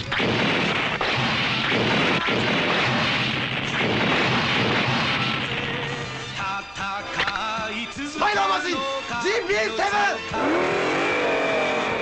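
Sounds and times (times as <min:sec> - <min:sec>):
explosions and crackling blasts: 0:00.0 - 0:06.1
music: 0:00.0 - 0:12.0.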